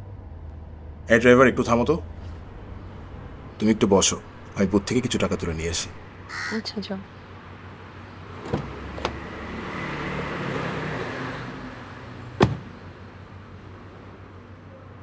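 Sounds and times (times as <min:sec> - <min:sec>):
outside noise: 0:00.0 - 0:15.0
car door latch clicks: 0:08.4 - 0:09.2, 0:12.4 - 0:12.8
car door shutting thud: 0:08.4 - 0:09.2, 0:12.4 - 0:12.8.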